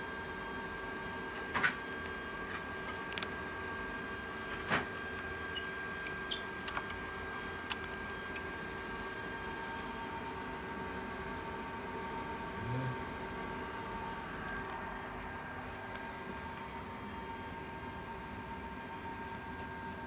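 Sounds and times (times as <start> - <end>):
electrical hum with whine: 0.0 - 20.0
cable connectors clicking: 4.9 - 9.1.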